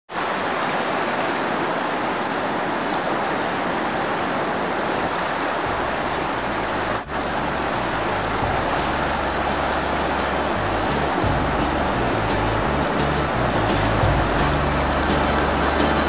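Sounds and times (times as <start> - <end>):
river rapids roaring: 0.1 - 16.0
deep rumble: 5.7 - 16.0.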